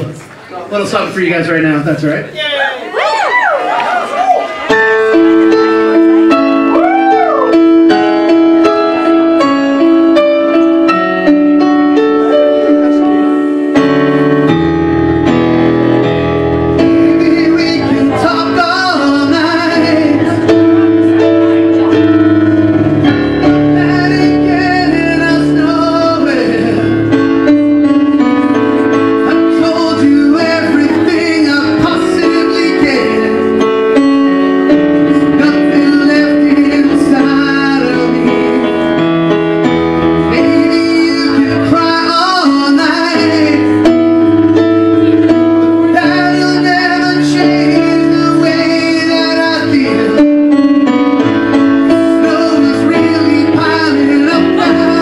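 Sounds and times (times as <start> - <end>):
keyboard chords: 3.6 - 55.0
man singing into microphone: 16.7 - 22.2, 23.4 - 28.2, 29.2 - 34.0, 34.7 - 39.2, 40.0 - 44.3, 44.9 - 55.0.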